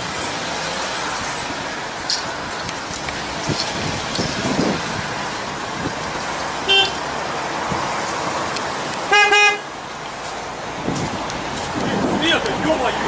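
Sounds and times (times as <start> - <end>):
vehicle noise: 0.0 - 13.0
car horn tooting: 6.6 - 7.0, 9.1 - 9.7.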